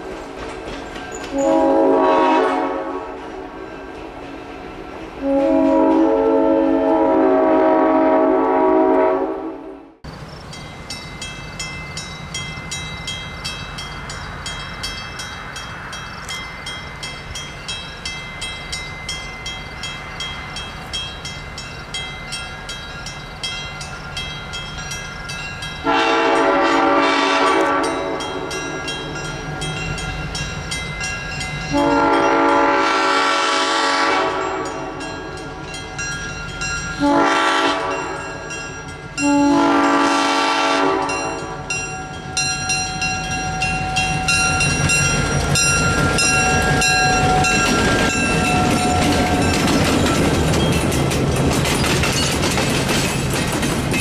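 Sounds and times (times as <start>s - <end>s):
train air horn blasts: 1.3s - 4.2s, 5.2s - 10.0s, 25.8s - 28.5s, 31.7s - 35.0s, 37.0s - 38.5s, 39.2s - 41.7s, 46.1s - 49.6s
railroad crossing bell ringing: 10.1s - 53.2s.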